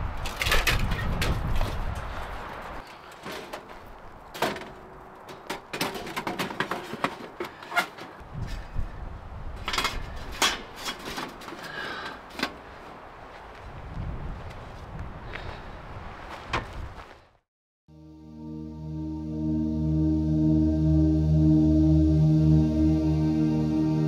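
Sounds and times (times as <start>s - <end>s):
wind gusts on microphone: 0.0s - 2.8s, 8.2s - 10.8s, 12.6s - 17.4s
camp gear clicking and clattering: 0.2s - 8.7s, 9.6s - 12.9s.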